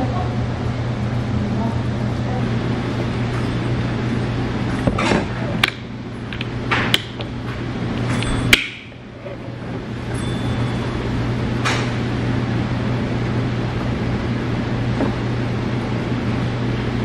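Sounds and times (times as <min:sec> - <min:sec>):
low room hum: 0:00.0 - 0:17.0
tableware clicks: 0:08.0 - 0:08.9.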